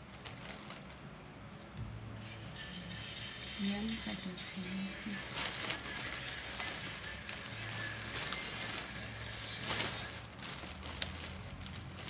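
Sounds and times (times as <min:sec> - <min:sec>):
plastic packaging crinkling: 0:00.0 - 0:01.8, 0:05.0 - 0:12.0.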